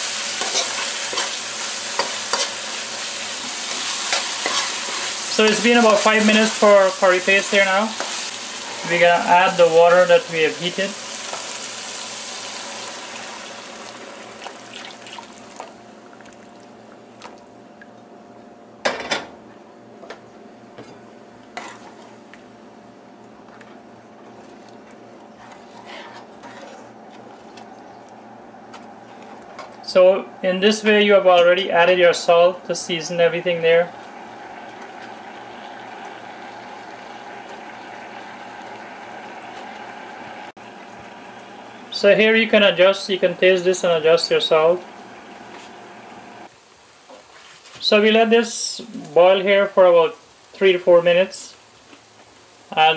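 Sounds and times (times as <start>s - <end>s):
water pouring into a pan: 11.0s - 16.6s.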